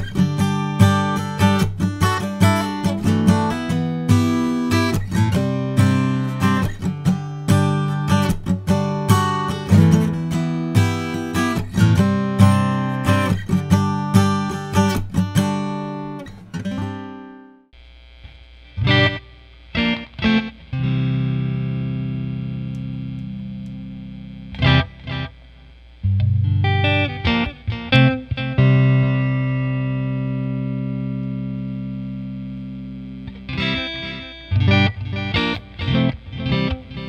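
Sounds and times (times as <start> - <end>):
electric guitar chords ringing: 0.0 - 17.6, 18.7 - 37.0
acoustic guitar strumming chords: 0.0 - 17.7, 18.8 - 25.4, 26.0 - 37.0
amplifier hiss: 17.8 - 37.0.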